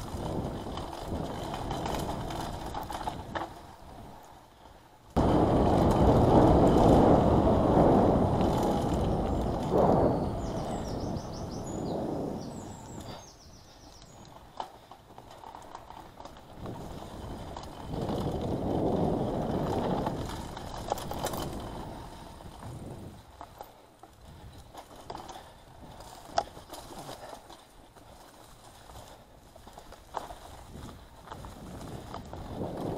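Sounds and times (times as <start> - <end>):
bike rattles and clicks: 0.0 - 32.9
bike tyres rumbling: 0.0 - 32.9.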